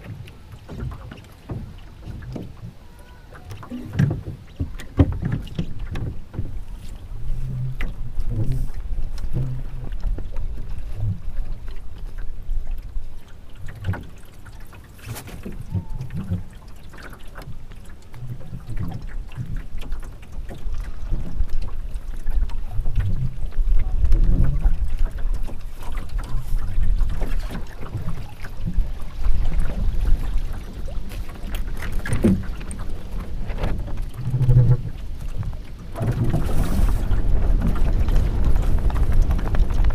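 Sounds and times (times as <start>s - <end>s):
wind rumble on microphone: 0.0s - 16.6s, 17.4s - 39.9s
water splashing against hull: 0.0s - 39.9s.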